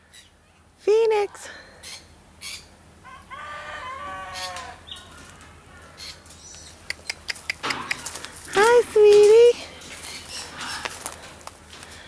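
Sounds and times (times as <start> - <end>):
rooster crowing: 3.0 - 5.5.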